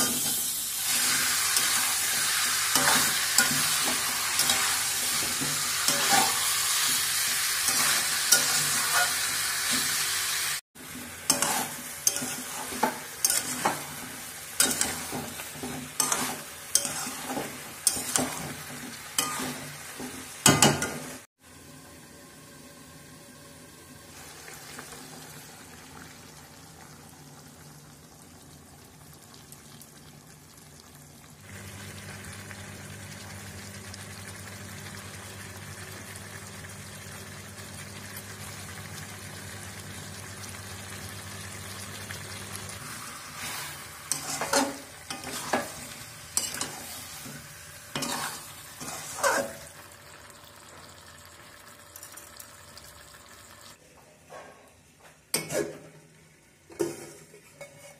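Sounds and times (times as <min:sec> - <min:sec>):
curry sizzling in a wok: 0:00.0 - 0:53.8
metal spatula scraping a wok: 0:01.0 - 0:06.9, 0:07.6 - 0:10.0, 0:11.2 - 0:14.0, 0:14.6 - 0:19.7, 0:43.2 - 0:45.8, 0:47.9 - 0:49.7, 0:57.0 - 0:57.9.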